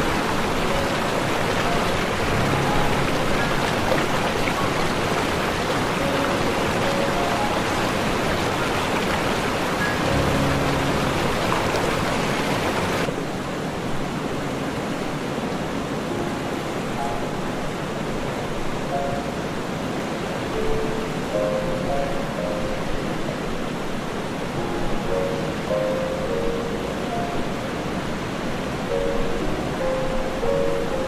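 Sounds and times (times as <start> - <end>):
faint music notes: 0.0 - 13.2, 15.9 - 31.0
heavy rain pouring onto water: 0.0 - 15.7.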